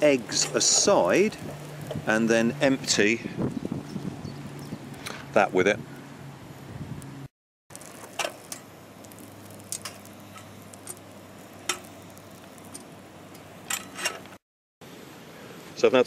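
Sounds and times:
butter sizzling in a saucepan: 7.7s - 12.8s.

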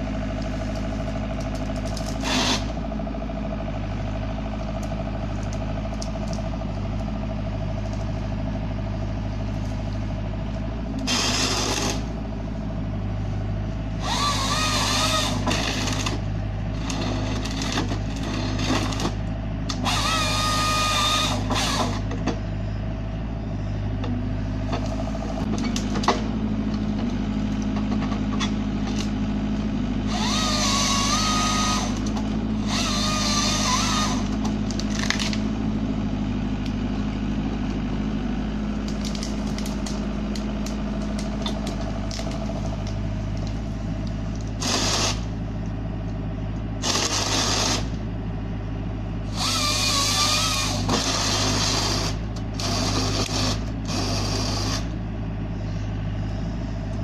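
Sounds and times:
high hydraulic whine: 0.0s - 3.6s, 10.2s - 27.2s, 27.8s - 35.8s, 43.6s - 45.5s, 46.8s - 48.1s, 49.2s - 57.0s
excavator diesel engine running: 0.0s - 57.0s.

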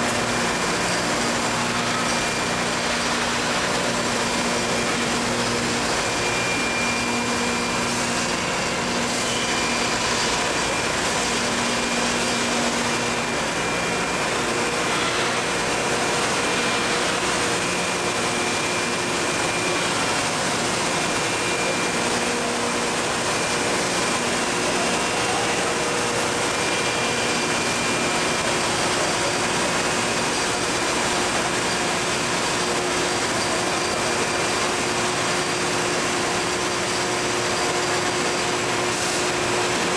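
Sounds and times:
machine hiss and hum: 0.0s - 39.9s.

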